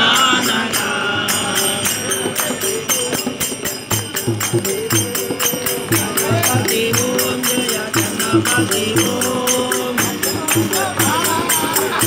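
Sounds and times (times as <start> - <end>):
jingling metal percussion: 0.0 - 12.0
men singing together: 0.0 - 12.0
tabla and hand drum: 0.0 - 12.0.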